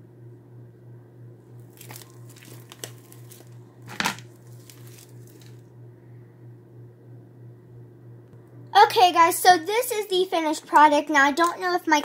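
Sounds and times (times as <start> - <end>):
steady low hum: 0.0 - 12.0
slime squelching and crackling: 1.6 - 3.6, 4.3 - 5.6.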